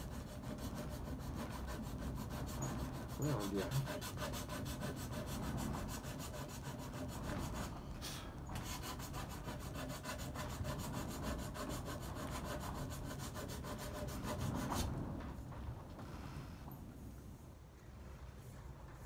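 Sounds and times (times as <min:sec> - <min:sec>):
rasp filing metal track: 0:00.0 - 0:07.9, 0:08.6 - 0:15.0.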